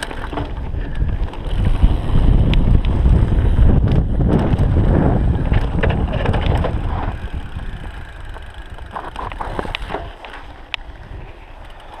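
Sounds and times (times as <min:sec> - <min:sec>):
bike clicks and rattles: 0:00.0 - 0:12.0
wind buffeting microphone: 0:00.0 - 0:12.0.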